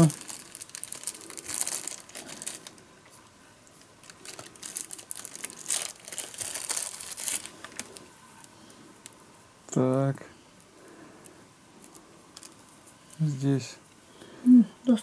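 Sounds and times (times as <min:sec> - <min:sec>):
plastic bag crinkling: 0:00.0 - 0:02.8, 0:03.8 - 0:08.1.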